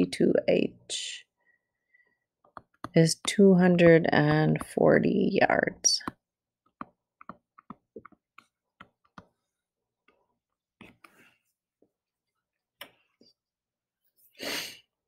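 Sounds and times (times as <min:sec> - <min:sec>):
pen tapping on screen: 0:02.4 - 0:03.7, 0:06.0 - 0:09.4.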